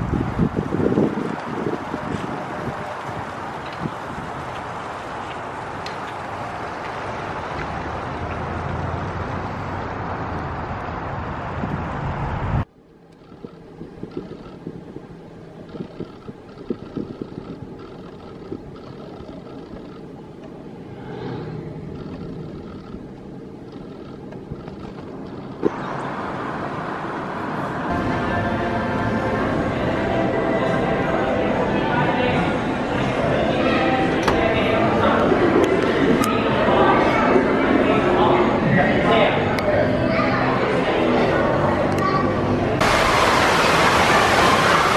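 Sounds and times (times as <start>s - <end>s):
wind noise on microphone: 0.0s - 6.3s, 10.8s - 19.9s
road noise inside car: 0.0s - 44.9s.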